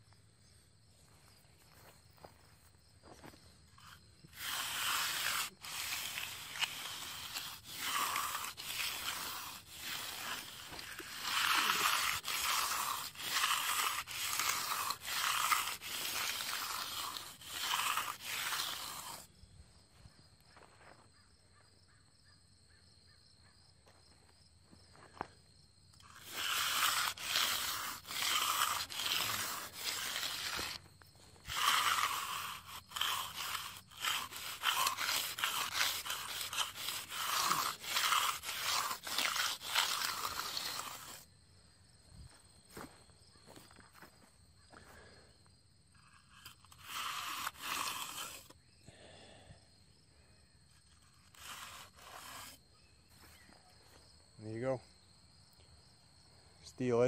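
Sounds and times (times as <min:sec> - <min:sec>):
steel edger scraping concrete: 0:03.1 - 0:19.3, 0:26.0 - 0:41.3, 0:46.0 - 0:48.6, 0:50.7 - 0:53.4.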